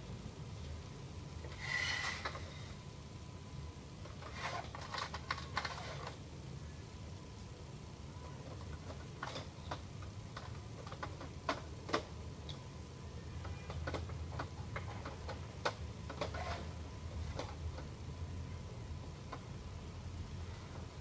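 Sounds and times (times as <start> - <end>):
plastic printer parts clicking: 8.6 - 12.1, 13.6 - 16.7.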